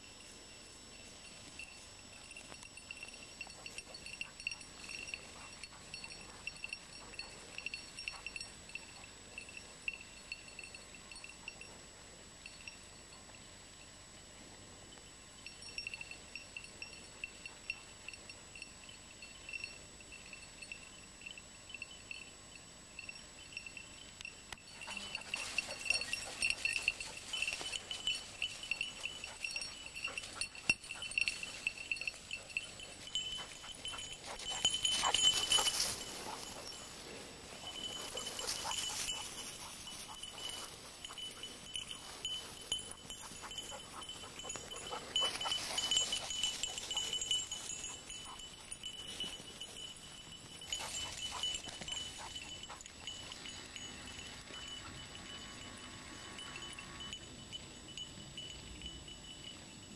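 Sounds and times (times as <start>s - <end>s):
small bell tinkling: 0.0s - 59.9s
rustling through dry grass: 24.8s - 55.2s.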